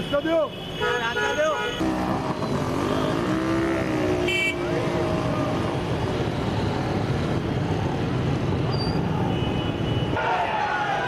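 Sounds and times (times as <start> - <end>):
motorcycle engines running: 1.8 - 8.7
crowd voices: 10.2 - 11.0.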